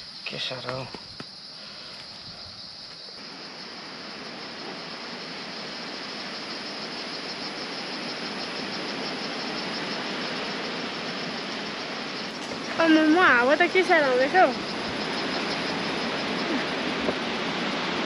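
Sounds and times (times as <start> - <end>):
strong wind blowing: 3.3 - 18.0.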